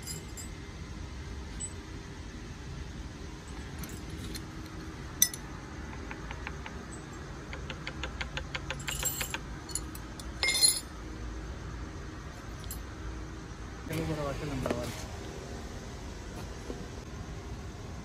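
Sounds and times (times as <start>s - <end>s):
loud ringing metal clink: 0.0s - 0.6s, 5.2s - 5.4s, 8.8s - 10.9s
quick even ticks: 7.4s - 9.3s.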